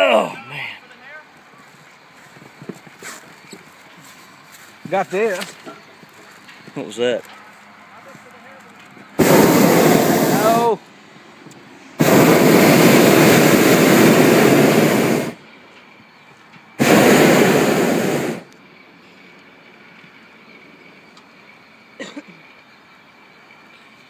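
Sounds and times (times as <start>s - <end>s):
propane burner blasts: 8.8s - 22.2s.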